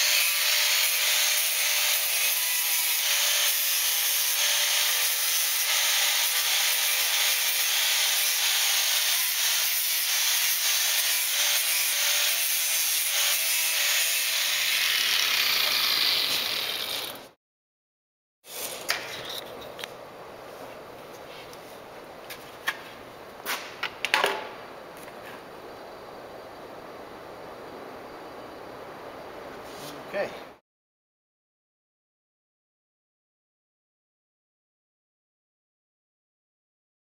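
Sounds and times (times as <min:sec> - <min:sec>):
tool hissing and grating: 0:00.0 - 0:17.4.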